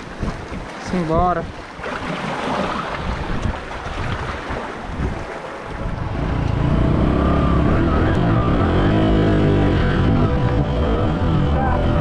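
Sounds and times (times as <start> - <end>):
wind on microphone: 0.0 - 12.0
background music: 6.7 - 12.0.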